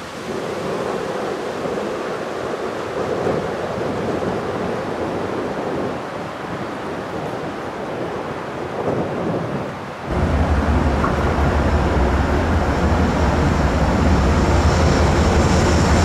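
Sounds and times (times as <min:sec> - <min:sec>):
wind blowing across microphone: 0:00.0 - 0:16.0.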